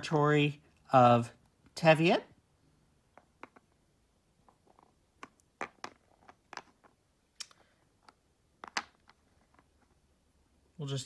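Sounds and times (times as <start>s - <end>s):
game pieces tapping on board: 3.1s - 3.8s, 4.4s - 7.0s, 7.9s - 10.0s.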